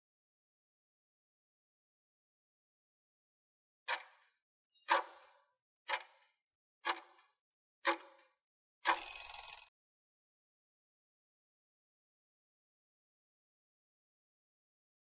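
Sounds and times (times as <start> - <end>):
clock ticks: 3.9 - 5.3, 5.9 - 9.6.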